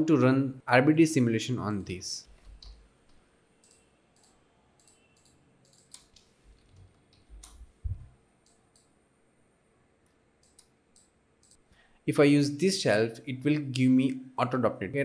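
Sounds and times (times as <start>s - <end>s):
soft low thump: 7.8s - 8.1s
faint mouse clicks: 8.4s - 9.0s.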